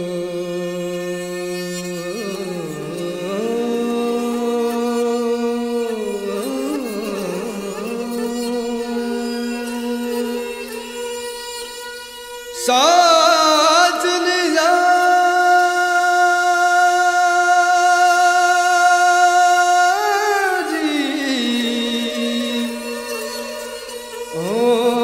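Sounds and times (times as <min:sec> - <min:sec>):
solo voice singing ornamented line: 0:12.6 - 0:25.0.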